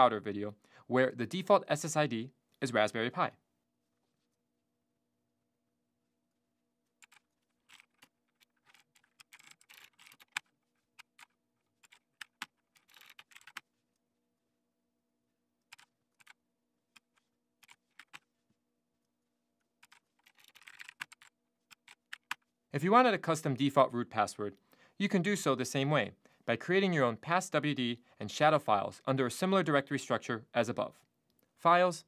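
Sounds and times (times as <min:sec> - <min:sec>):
typing on computer keyboard: 0:07.0 - 0:13.6, 0:19.8 - 0:22.4.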